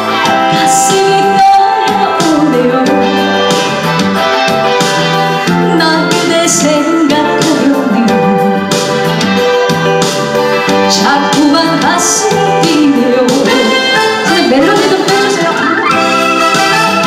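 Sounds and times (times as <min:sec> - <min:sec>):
keyboard-led backing track: 0:00.0 - 0:17.0
woman singing into microphone: 0:00.2 - 0:03.8, 0:05.5 - 0:08.9, 0:10.7 - 0:16.2.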